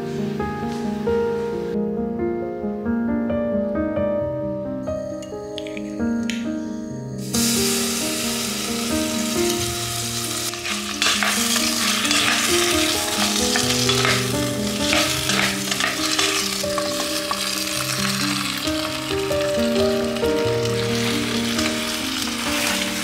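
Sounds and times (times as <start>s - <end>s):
background music: 0.0s - 23.0s
onions sizzling in a pot: 7.2s - 23.0s
wooden spoon scraping pot: 10.6s - 17.0s.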